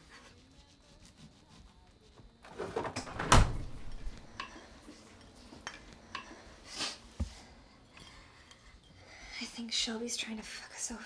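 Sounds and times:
refrigerator door thump: 2.8s - 3.9s.

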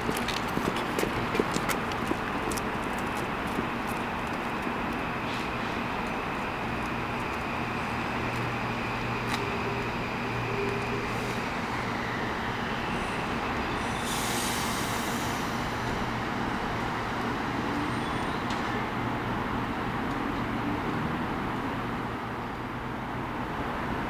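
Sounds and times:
electric train slowing to a stop: 2.6s - 19.1s
high hiss: 13.8s - 15.8s.

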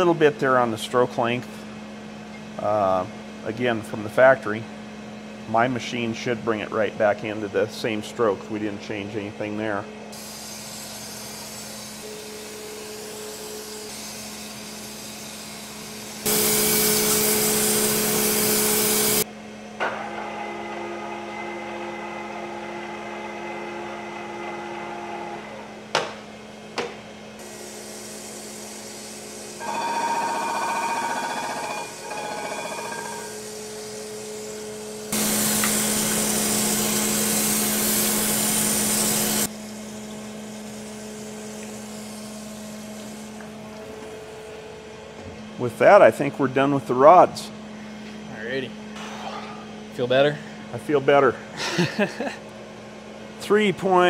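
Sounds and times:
grinder humming: 10.2s - 19.3s, 27.4s - 44.6s
grinding wheel on metal: 29.6s - 33.5s.

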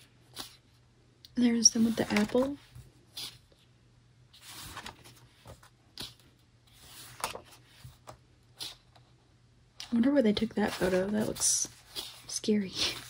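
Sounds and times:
paper pages rustling: 1.7s - 3.4s, 4.3s - 8.2s, 10.4s - 13.0s.

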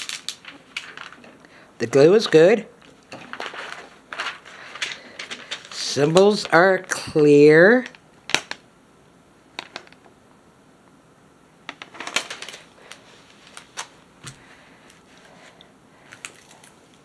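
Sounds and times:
plastic film crinkling: 0.0s - 1.4s, 2.5s - 6.9s, 12.0s - 14.0s.

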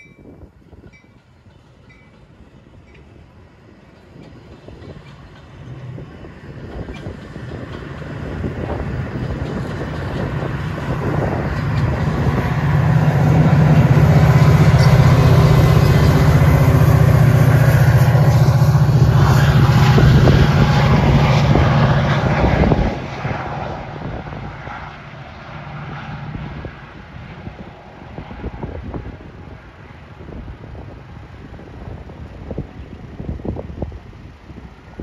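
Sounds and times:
diesel locomotive engine: 0.0s - 35.0s.

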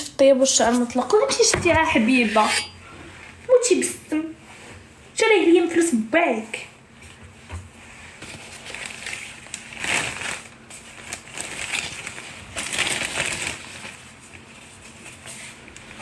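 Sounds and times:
paper crinkling and rustling: 8.1s - 16.0s.

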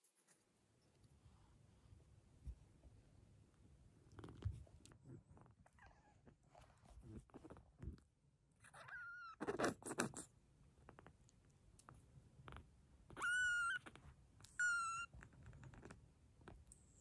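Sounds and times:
kitten mewing: 13.1s - 15.2s.

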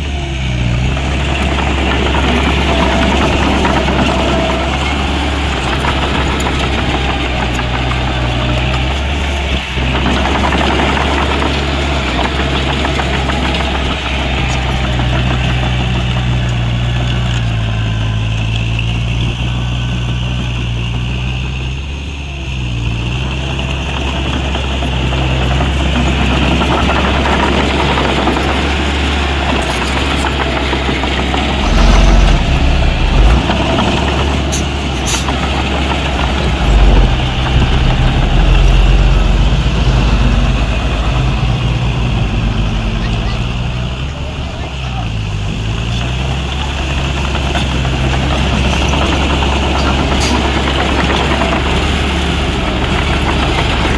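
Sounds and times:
heavy diesel engine: 0.0s - 53.9s
heavy low rumbles: 31.3s - 44.6s.

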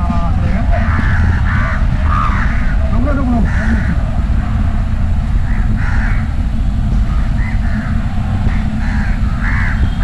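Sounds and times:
crows cawing: 0.0s - 10.0s
low rumble: 0.0s - 10.0s.

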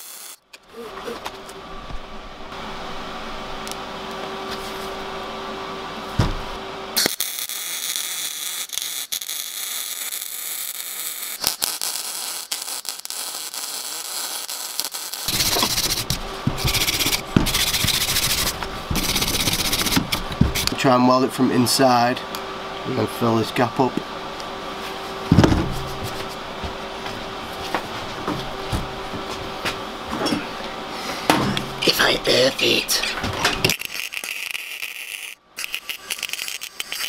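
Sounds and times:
welding arc crackling and hissing: 0.0s - 1.2s, 7.0s - 22.2s, 31.0s - 37.0s.

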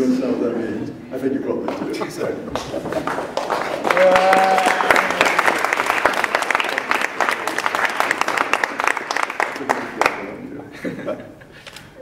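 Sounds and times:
audience applauding: 1.7s - 10.5s.

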